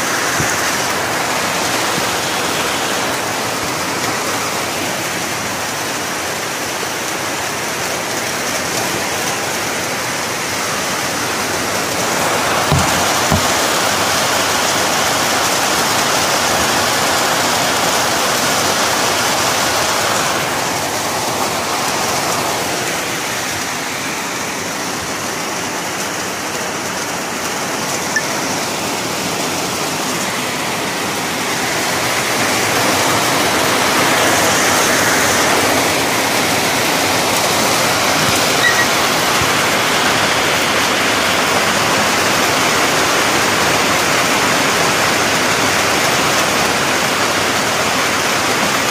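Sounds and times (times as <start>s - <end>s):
heavy rain: 0.0s - 48.9s.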